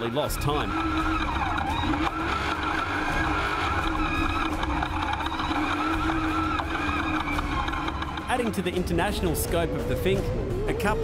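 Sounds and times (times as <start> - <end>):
truck engine at high revs: 0.3 - 8.9.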